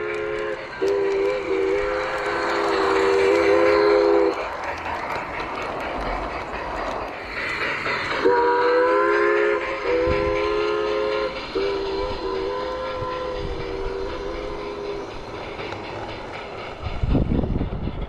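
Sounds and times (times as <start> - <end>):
model train chime whistle: 0.0 - 4.4, 8.2 - 15.0
model train cars rolling: 0.0 - 18.0.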